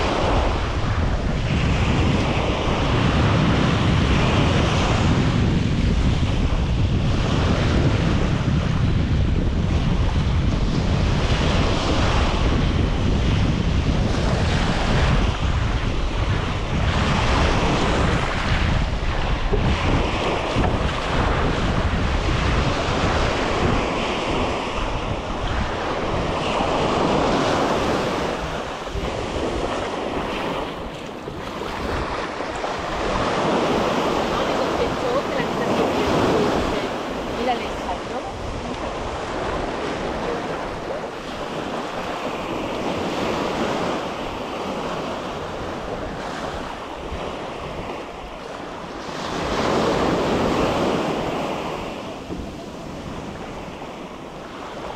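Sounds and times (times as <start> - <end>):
ocean surf breaking: 0.0 - 54.9
wind buffeting microphone: 0.0 - 54.9.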